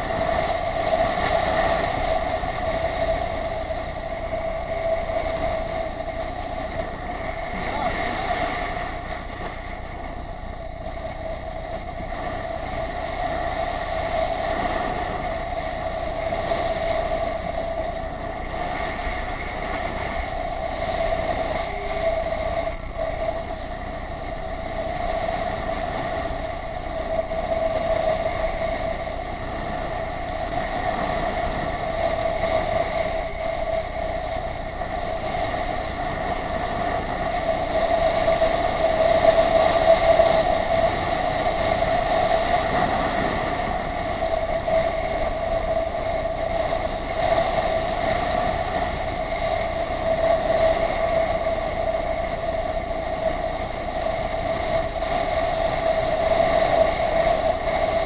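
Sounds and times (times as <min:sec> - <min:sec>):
constant whine: 0:00.0 - 0:58.0
wind: 0:00.0 - 0:58.0.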